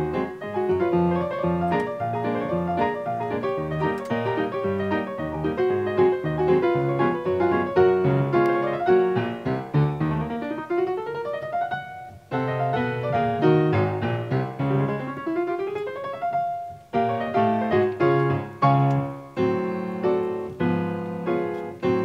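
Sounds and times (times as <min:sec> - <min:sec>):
piano music: 0:00.0 - 0:22.0.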